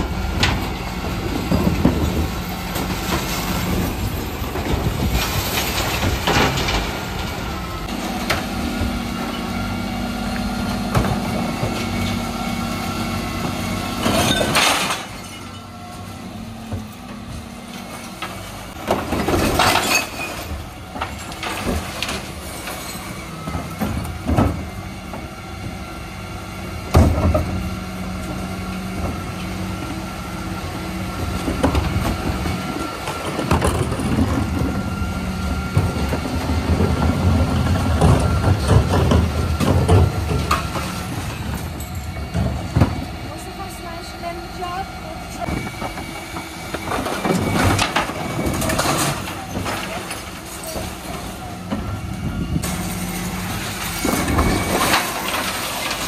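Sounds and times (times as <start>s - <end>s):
truck engine hum: 0.0s - 56.0s
bins and bottles crashing: 1.4s - 7.5s, 14.0s - 15.7s, 18.8s - 24.7s, 33.1s - 34.8s, 35.7s - 43.1s, 45.4s - 52.0s, 52.6s - 56.0s.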